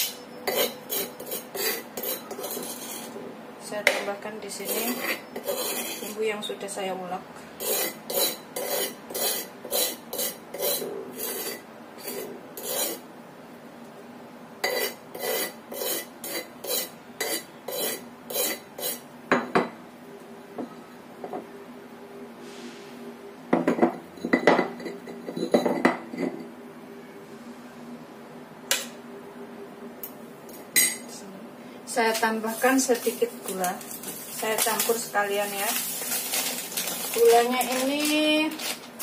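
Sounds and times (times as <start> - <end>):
scraping stone mortar: 0.5 - 3.3, 4.6 - 6.2, 7.6 - 13.0, 14.6 - 19.0.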